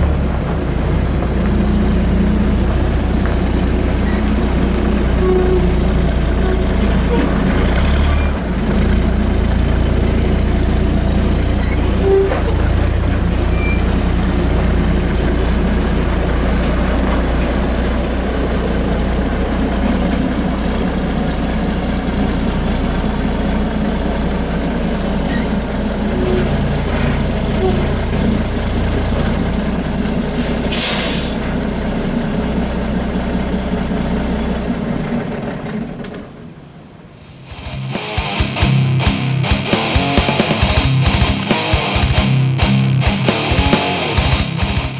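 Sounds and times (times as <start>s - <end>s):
diesel truck engine running: 0.0s - 44.9s
air brake hiss: 30.3s - 31.5s.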